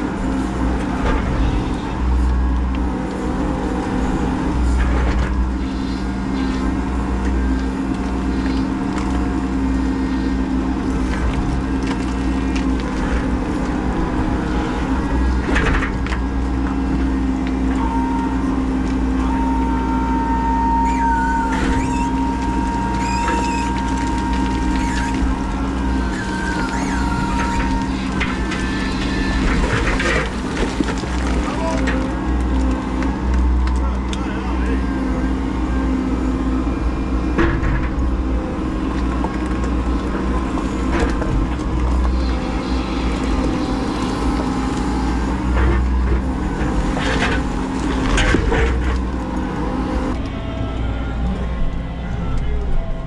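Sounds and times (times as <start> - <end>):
excavator engine running: 0.0 - 53.0
hydraulics working: 0.0 - 53.0
thin high whine: 42.0 - 45.7.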